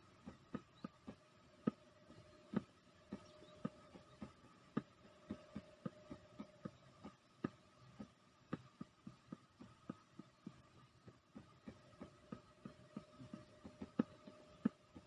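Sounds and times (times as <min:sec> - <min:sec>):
faint clicks and taps: 0:00.0 - 0:15.0
faint steady hum: 0:00.0 - 0:15.0.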